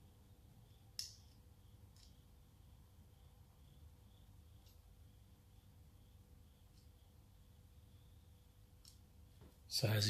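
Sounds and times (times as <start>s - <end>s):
low room hum: 0.0s - 10.0s.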